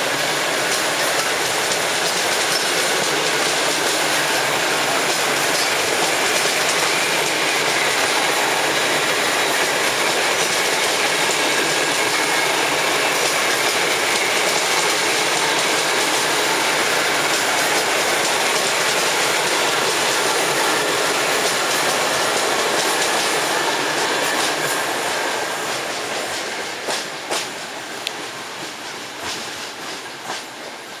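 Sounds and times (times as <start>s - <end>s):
train wheels rolling on rails: 0.0s - 31.0s.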